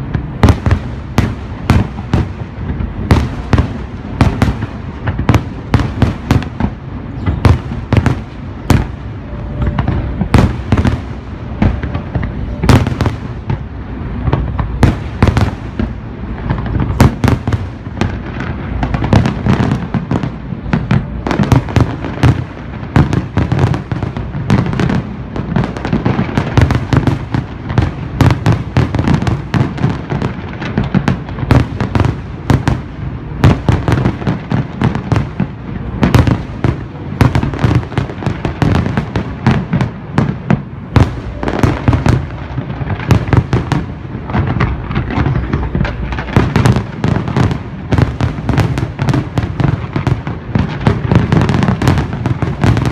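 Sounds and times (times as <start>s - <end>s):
fireworks bursts: 0.0s - 52.9s
low rumble: 6.7s - 17.0s.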